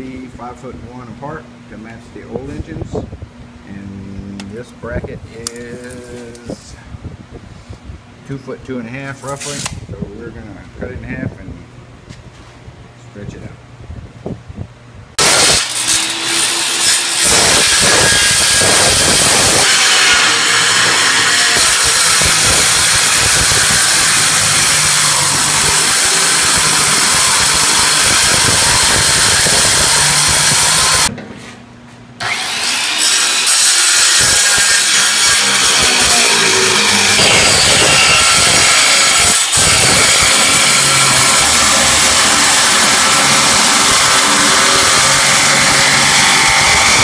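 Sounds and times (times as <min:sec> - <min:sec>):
circular saw cutting metal: 0:15.2 - 0:31.1, 0:32.2 - 0:47.0.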